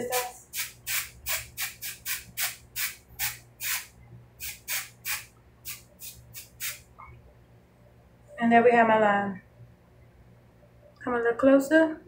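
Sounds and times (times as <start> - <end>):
aerosol spray bursts: 0.0 - 6.9.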